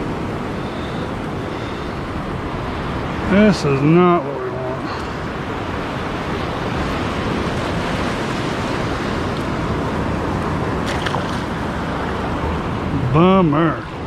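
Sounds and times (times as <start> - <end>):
waves washing over sand: 0.0 - 14.0.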